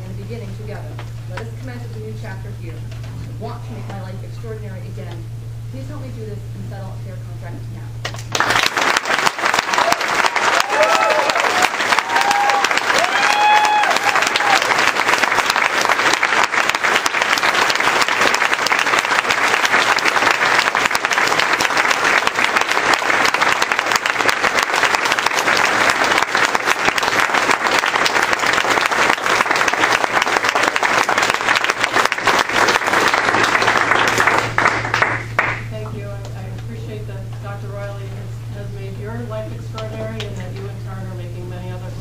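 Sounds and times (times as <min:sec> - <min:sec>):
audience applauding: 0:08.1 - 0:35.7.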